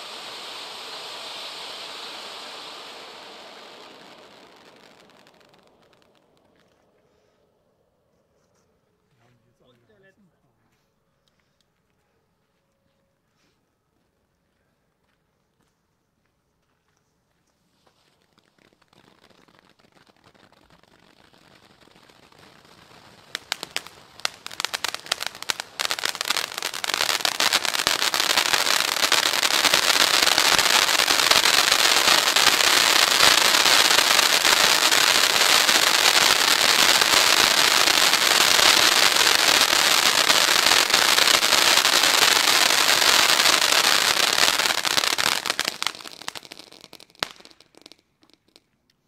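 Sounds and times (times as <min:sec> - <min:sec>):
firework fountain crackling hiss: 0:00.0 - 0:06.8, 0:17.8 - 0:48.7.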